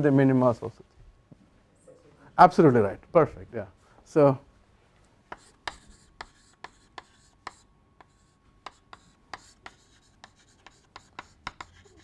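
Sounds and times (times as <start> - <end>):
chalk tapping and scratching: 5.3 - 12.0.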